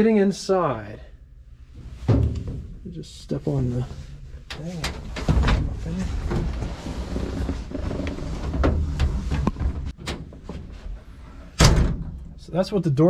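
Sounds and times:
heavy metal truck door slamming: 2.0s - 2.8s, 11.5s - 12.4s.

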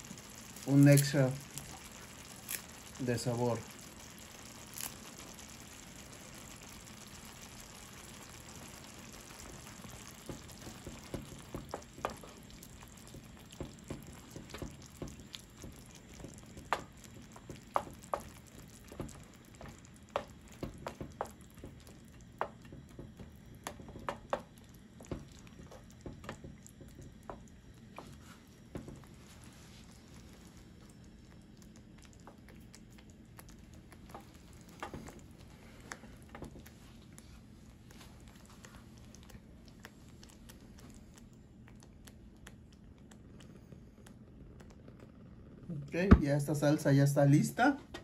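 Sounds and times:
salsa simmering in a pan: 0.0s - 48.0s
wooden spoon knocking on pan: 8.6s - 29.1s, 34.1s - 35.2s.

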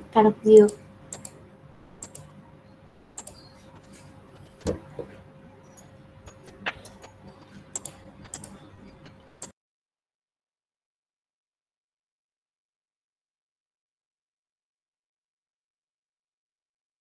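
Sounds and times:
computer keyboard keys clicking: 0.5s - 1.4s, 2.0s - 2.3s, 3.2s - 3.5s, 5.8s - 9.5s.

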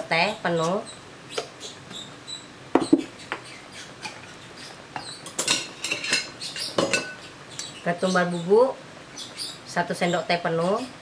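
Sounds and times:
utensils clinking against wok: 5.2s - 7.2s.

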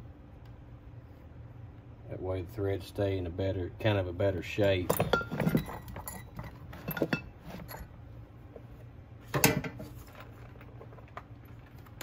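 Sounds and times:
low steady hum: 0.0s - 12.0s
metal tools clinking on bench: 4.7s - 7.9s.

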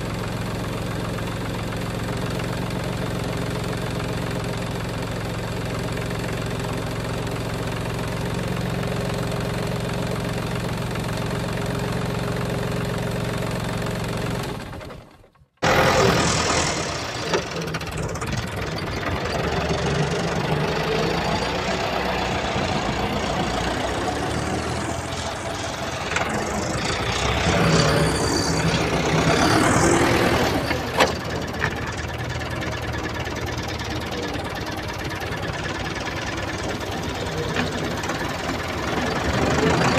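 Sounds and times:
rough toy motor running: 15.6s - 21.4s
toy vehicle engine hum: 15.6s - 39.9s.

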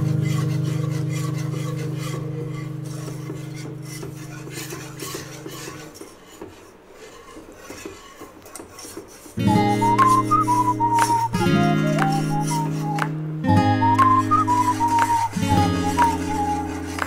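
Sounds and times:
whisk scraping saucepan: 0.0s - 13.0s, 13.9s - 17.0s
guitar music: 9.4s - 17.0s
held music chord: 9.4s - 17.0s.

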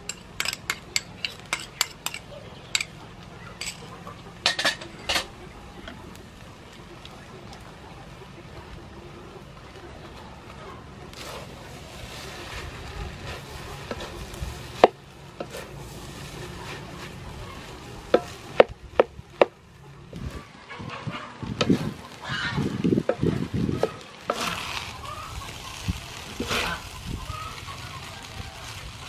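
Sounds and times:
spatula stirring in a pan: 0.0s - 3.0s, 3.6s - 3.8s, 11.1s - 19.6s, 23.0s - 29.0s
rice sizzling in a pan: 0.0s - 20.6s, 21.4s - 29.0s.

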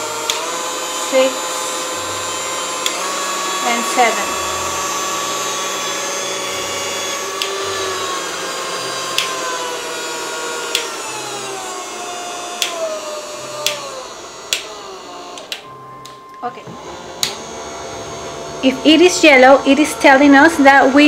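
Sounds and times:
hand mixer motor whine: 0.0s - 21.0s
mixer speed switch click: 0.2s - 0.4s, 9.1s - 9.4s, 10.7s - 11.0s, 13.6s - 13.9s, 14.5s - 16.2s.

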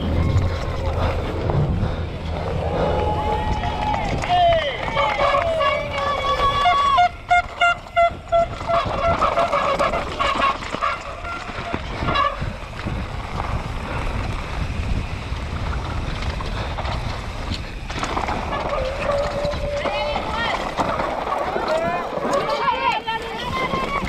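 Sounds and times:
wind on microphone: 0.0s - 22.6s, 23.2s - 24.0s
bike rattling over ground: 0.0s - 24.0s
spectators cheering: 2.4s - 7.8s
horn toots: 5.0s - 12.5s.

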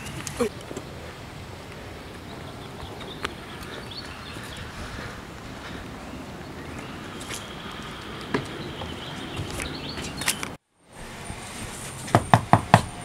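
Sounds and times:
footsteps on path and porch: 0.0s - 13.0s
outdoor background noise: 0.0s - 13.0s.

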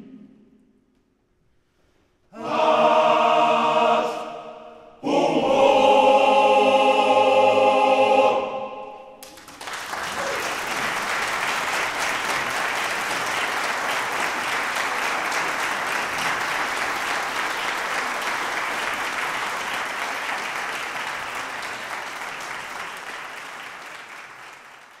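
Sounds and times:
audience applauding: 9.2s - 25.0s.

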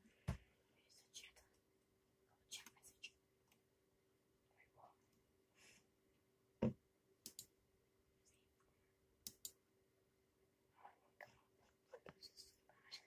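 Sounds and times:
faint steady hum: 0.0s - 13.0s
sharp clicks: 7.2s - 7.5s, 9.2s - 9.6s.

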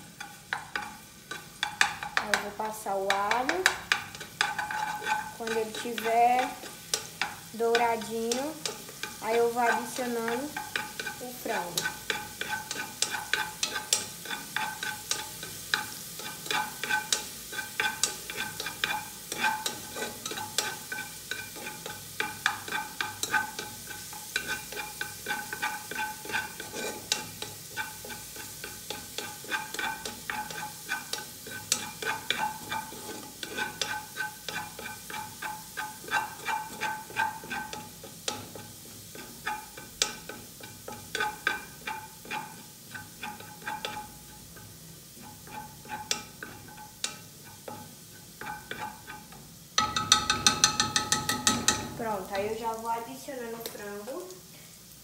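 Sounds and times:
garlic sizzling in oil: 0.0s - 55.0s
spatula scraping metal pot: 0.2s - 44.2s, 45.2s - 52.1s.

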